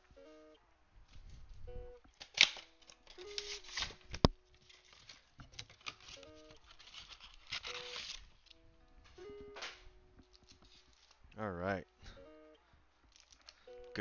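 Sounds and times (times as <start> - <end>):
faint guitar music: 0.0 - 14.0
cardboard box tearing and rustling: 3.3 - 4.0, 4.6 - 8.2.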